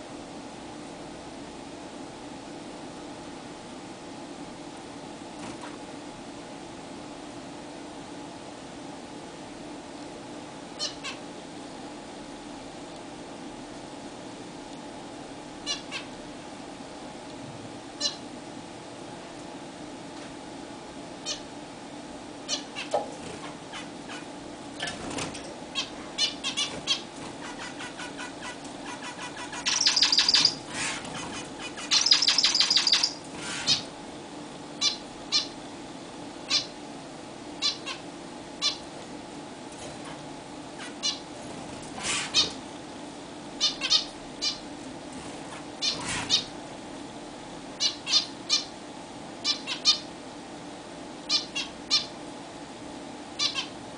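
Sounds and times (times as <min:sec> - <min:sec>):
finches giving nasal calls: 0:25.8 - 0:33.9, 0:34.8 - 0:35.5, 0:36.5 - 0:36.7, 0:37.6 - 0:38.0, 0:43.6 - 0:44.6, 0:47.8 - 0:48.7, 0:49.4 - 0:50.1, 0:51.3 - 0:52.1, 0:53.4 - 0:53.7.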